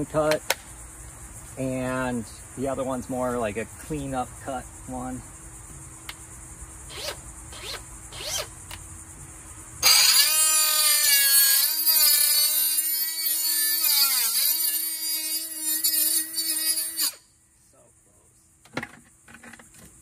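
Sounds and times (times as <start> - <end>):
power saw cutting plastic pipe: 9.8 - 17.2.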